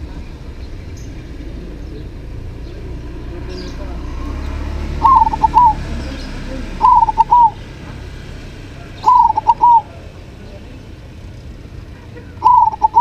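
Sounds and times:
dove cooing song: 0:01.0 - 0:07.7, 0:08.8 - 0:10.2, 0:12.3 - 0:13.0.

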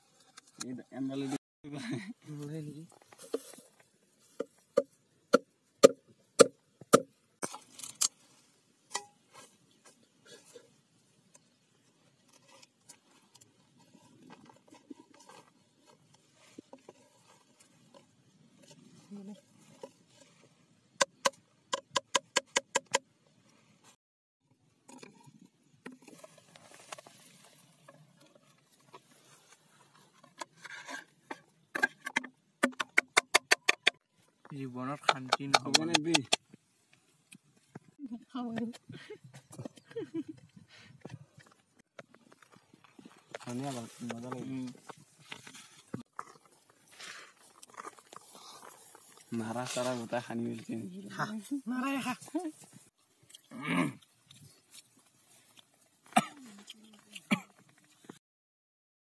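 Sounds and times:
bamboo splitting: 0:04.8 - 0:08.2.

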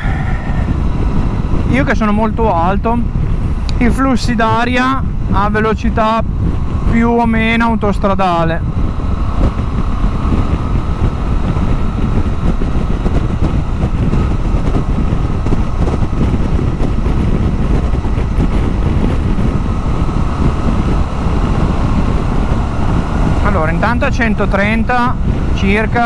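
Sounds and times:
motorcycle engine pulling steadily: 0:00.0 - 0:26.0
wind rush on microphone: 0:00.0 - 0:26.0.

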